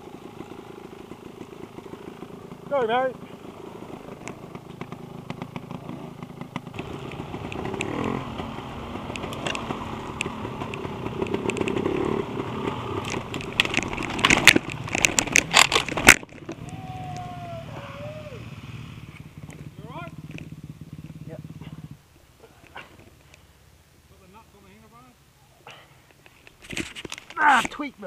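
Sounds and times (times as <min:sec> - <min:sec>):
dirt bike engine revving: 0:00.0 - 0:22.0
bike crashing into brush: 0:12.9 - 0:17.4.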